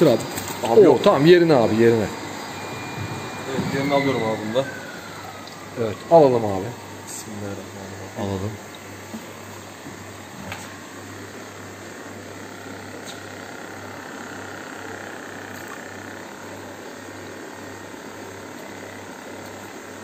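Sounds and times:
low pulsing hum: 0.0s - 11.3s
aquarium equipment hiss: 0.0s - 20.0s.

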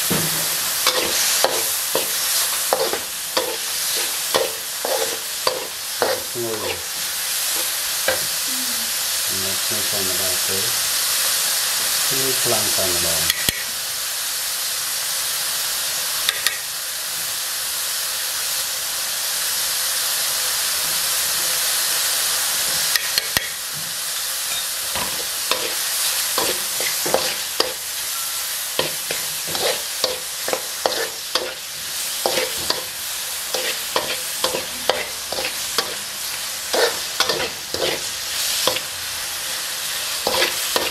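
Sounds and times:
meat sizzling in a wok: 0.0s - 40.9s
metal spatula scraping a wok: 0.3s - 8.3s, 24.5s - 38.9s, 39.5s - 40.9s.

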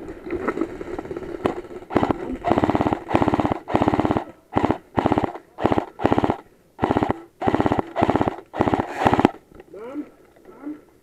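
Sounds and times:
airsoft gun firing bursts: 1.9s - 9.4s.

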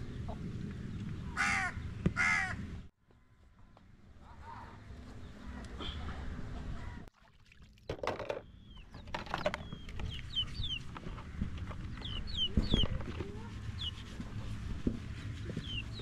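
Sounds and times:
chickens peeping: 8.8s - 13.2s, 13.8s - 14.0s.

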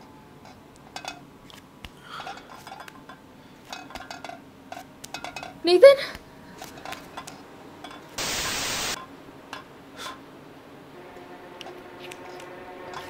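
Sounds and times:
loud static hiss burst: 8.2s - 9.0s.

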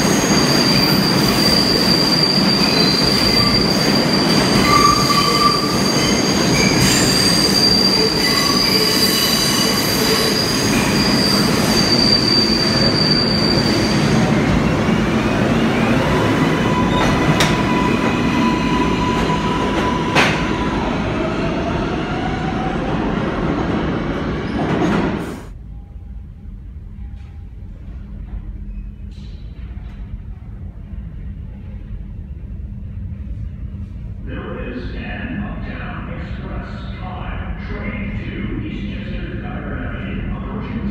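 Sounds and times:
high-pitched wheel squeal: 0.0s - 14.2s
subway train rumble: 0.0s - 40.9s.

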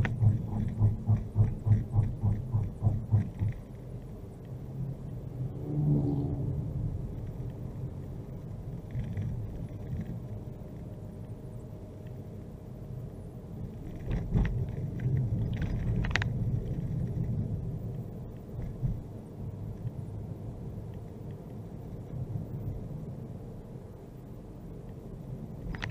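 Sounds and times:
sharp knocks: 0.0s - 3.6s
car engine and road noise: 0.0s - 25.9s.

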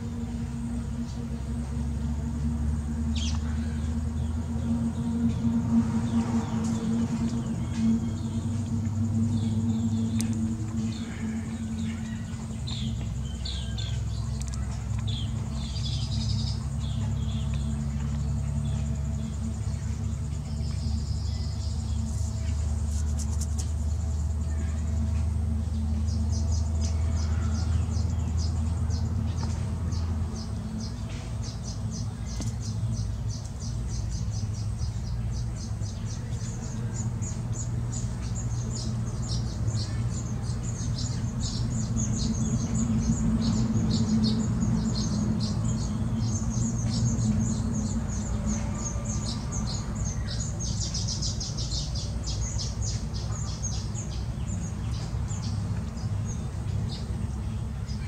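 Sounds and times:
low rumble: 0.0s - 58.0s
birds chirping: 0.2s - 58.0s.

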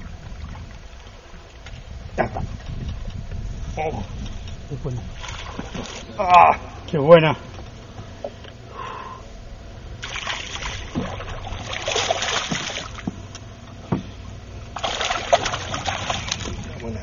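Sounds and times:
fish thrashing and splashing: 10.0s - 13.0s, 14.7s - 16.8s.

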